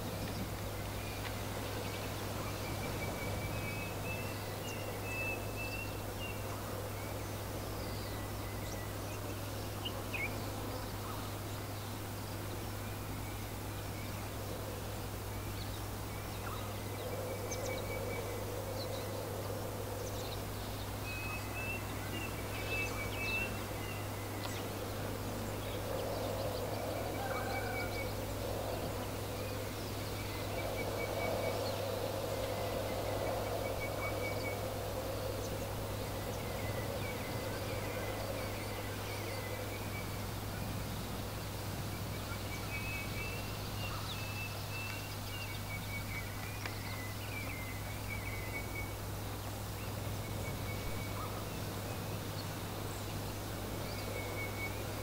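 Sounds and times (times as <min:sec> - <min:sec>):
songbirds chirping: 0:00.0 - 0:55.0
steady wind: 0:00.0 - 0:55.0
low warbling bird calls: 0:12.7 - 0:55.0.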